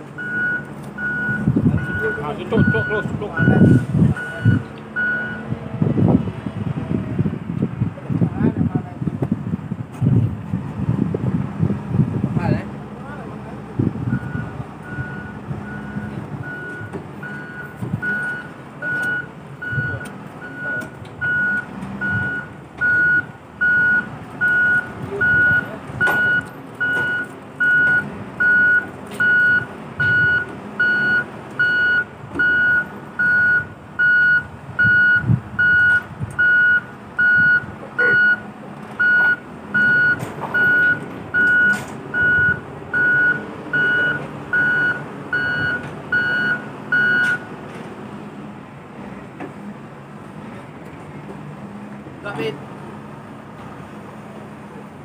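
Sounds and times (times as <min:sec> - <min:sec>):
diesel engine running: 0:00.0 - 0:55.0
reversing alarm beeping: 0:00.2 - 0:05.5, 0:14.1 - 0:38.4, 0:39.0 - 0:47.5.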